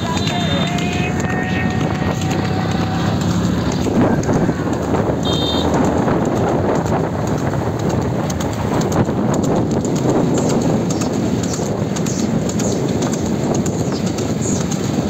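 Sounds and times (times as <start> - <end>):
hooves clattering on road: 0.0 - 15.0
motorcycle running: 0.0 - 15.0.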